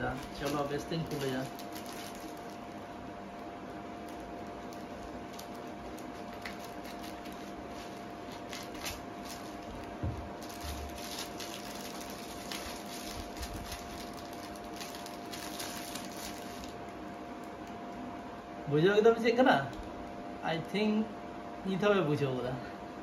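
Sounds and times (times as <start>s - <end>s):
plastic packaging crinkling: 0.0s - 17.7s
faint steady hum: 0.0s - 23.0s
soft thump: 10.0s - 10.3s.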